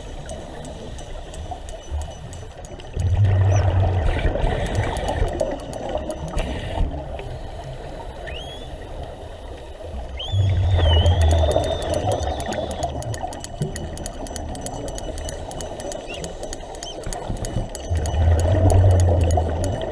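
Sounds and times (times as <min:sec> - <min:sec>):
underwater hiss with crackling clicks: 0:00.0 - 0:19.9
exhaled bubbles rumbling: 0:02.9 - 0:07.3, 0:10.0 - 0:13.7, 0:17.8 - 0:19.9
thin whistles: 0:08.2 - 0:08.8, 0:10.1 - 0:18.5.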